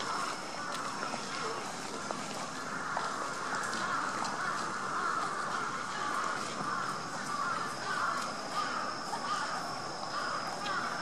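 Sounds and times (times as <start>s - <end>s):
crows cawing: 2.4s - 11.0s.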